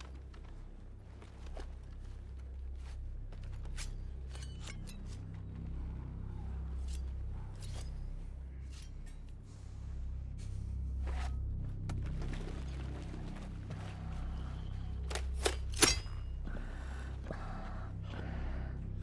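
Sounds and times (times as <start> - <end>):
low steady rumble: 0.0 - 19.0
gear and rifles clicking: 14.8 - 16.2.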